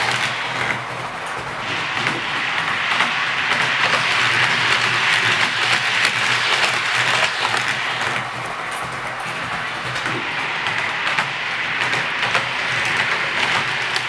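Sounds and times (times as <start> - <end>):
model train rattling on track: 0.0 - 14.0.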